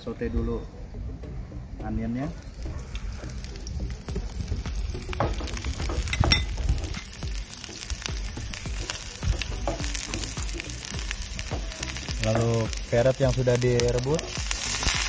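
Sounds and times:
wooden spatula clacking on pan: 2.4s - 12.9s
onion sizzling in oil: 2.4s - 15.0s.

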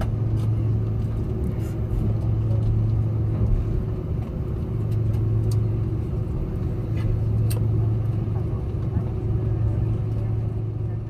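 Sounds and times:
aircraft engine hum and rumble: 0.0s - 11.0s
faint clicks in cabin: 4.2s - 5.7s, 6.9s - 7.7s.

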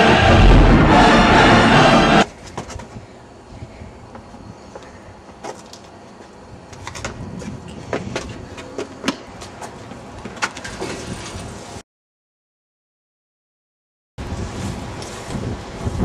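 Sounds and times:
steady low rumble: 0.0s - 2.3s.

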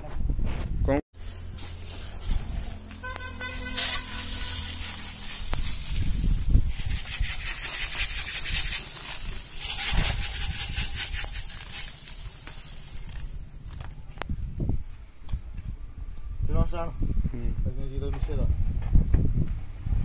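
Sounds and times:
salt grains pouring: 1.2s - 13.4s.

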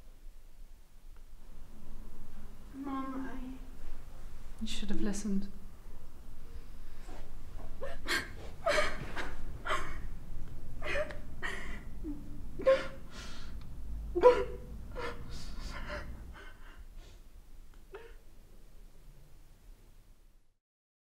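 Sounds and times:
gasping breaths: 7.8s - 10.0s
woman crying hard: 7.8s - 10.1s, 10.8s - 13.1s, 14.2s - 16.8s.

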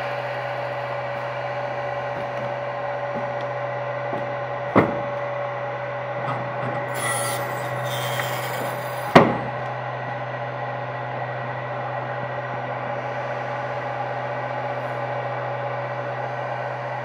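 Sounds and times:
milling machine motor hum: 0.0s - 17.0s
sharp knocks: 4.2s - 5.1s.

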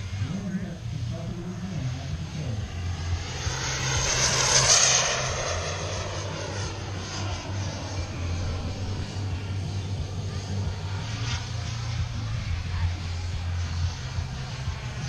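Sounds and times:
jet model whooshing overhead: 0.0s - 15.0s.

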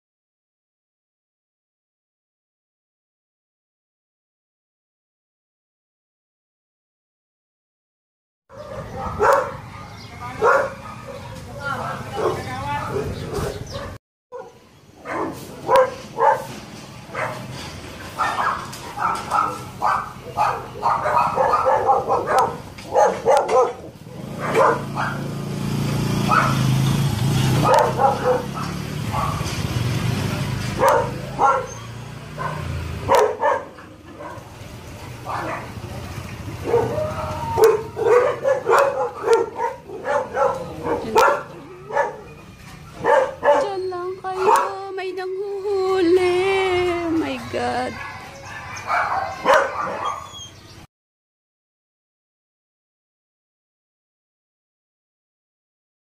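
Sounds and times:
dogs barking: 8.5s - 25.4s, 26.2s - 26.8s, 27.5s - 29.7s, 30.4s - 44.9s, 47.3s - 50.8s.

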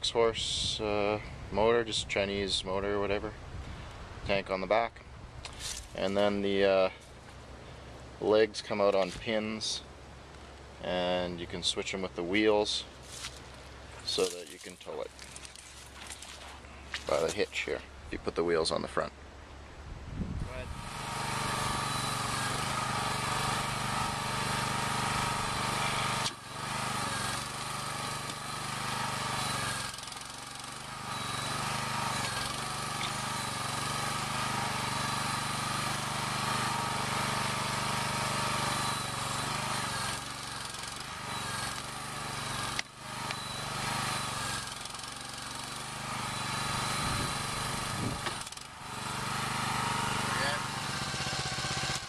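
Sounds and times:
small gasoline engine running: 20.5s - 52.0s.

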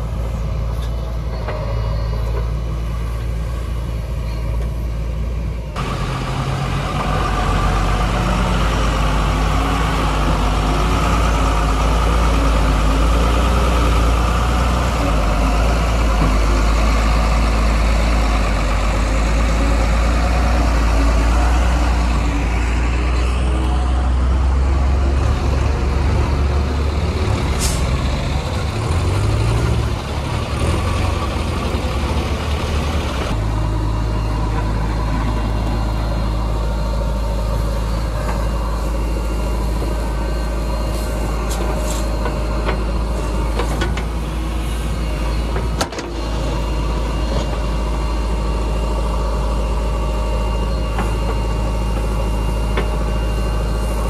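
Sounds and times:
diesel truck engine running: 0.0s - 54.0s
air brake hiss: 27.6s - 28.0s.

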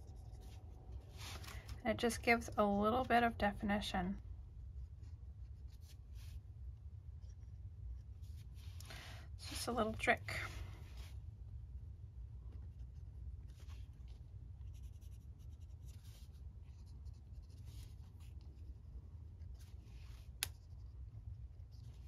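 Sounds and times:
pencil scratching on paper: 14.6s - 18.5s.

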